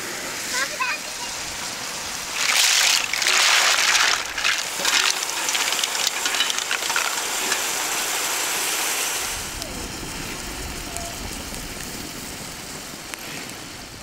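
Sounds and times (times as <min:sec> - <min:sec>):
mussels sizzling in hot pan: 0:00.3 - 0:09.4
liquid pouring: 0:02.2 - 0:08.2.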